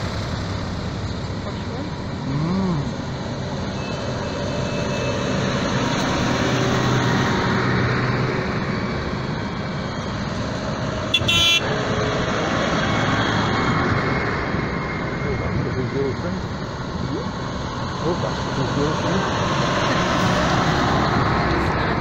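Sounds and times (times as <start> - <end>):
tractor diesel engines passing: 0.0 - 22.0
short horn toot: 11.2 - 11.6.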